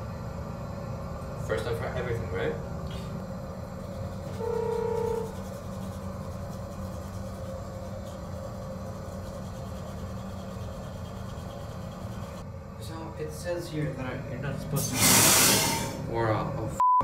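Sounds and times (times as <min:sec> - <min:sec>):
brief steady tone: 0:04.3 - 0:05.4, 0:16.8 - 0:17.0.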